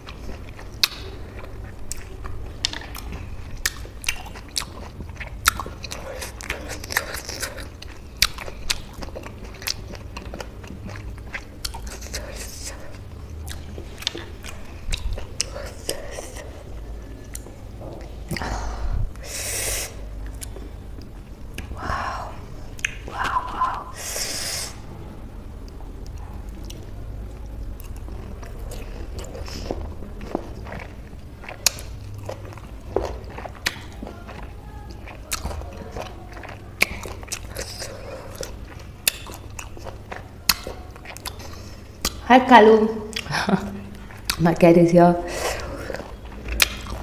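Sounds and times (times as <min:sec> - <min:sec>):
chewing juicy fruit: 0:00.0 - 0:47.0
wet mouth smacks and clicks: 0:00.8 - 0:01.1, 0:22.8 - 0:23.1, 0:33.6 - 0:33.9, 0:42.0 - 0:42.2, 0:46.5 - 0:47.0
hissing breath through teeth: 0:18.4 - 0:20.1, 0:23.9 - 0:24.8
mouth smacks and clicks: 0:22.7 - 0:24.7, 0:40.5 - 0:42.3, 0:46.4 - 0:47.0.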